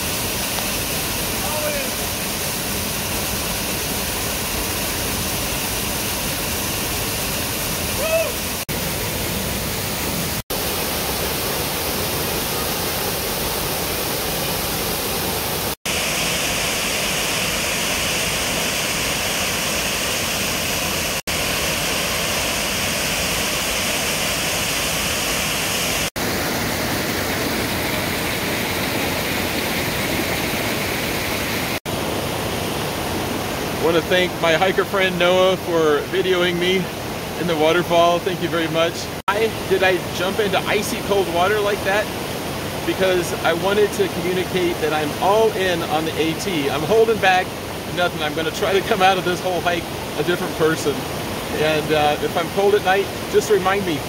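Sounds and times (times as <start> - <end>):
waterfall rushing: 0.0 - 54.0
person crying out: 7.9 - 8.6.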